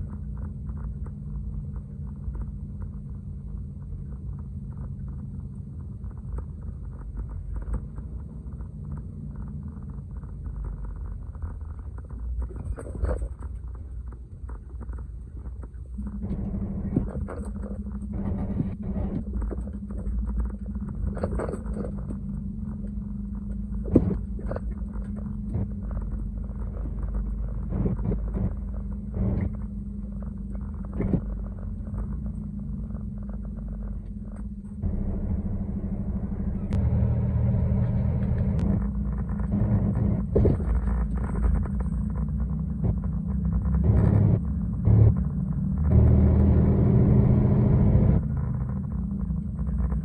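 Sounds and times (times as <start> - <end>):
truck diesel engine drone: 14.0 - 50.0.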